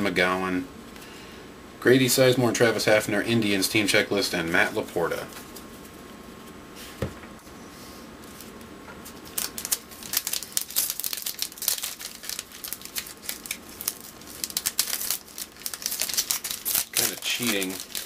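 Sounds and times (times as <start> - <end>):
card pack wrapper crinkling: 9.0 - 18.0.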